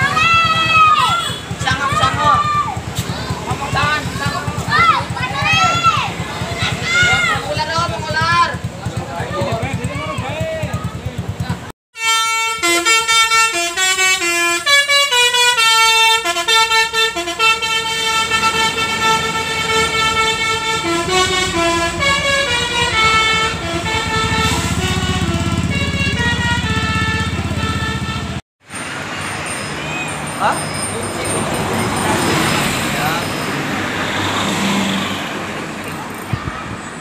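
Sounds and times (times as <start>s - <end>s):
street noise: 0.0s - 37.0s
bus horn playing fast tune: 1.1s - 1.6s, 12.0s - 28.4s.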